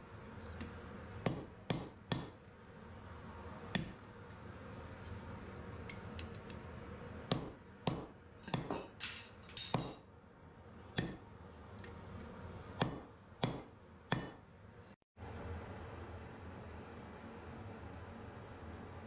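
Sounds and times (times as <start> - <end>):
hammer striking metal on anvil: 1.3 - 2.4, 7.3 - 10.0, 11.0 - 11.2, 12.8 - 14.4.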